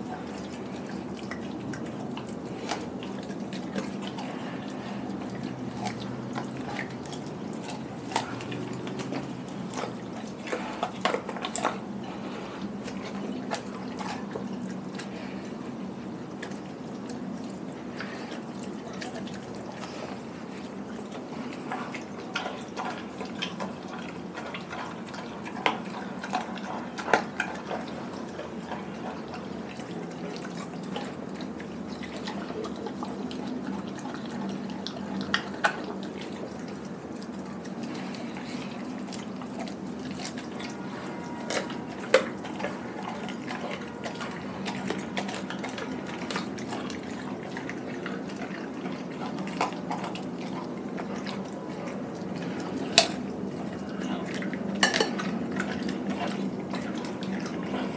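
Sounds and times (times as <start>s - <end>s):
dog chewing and licking: 0.0s - 57.9s.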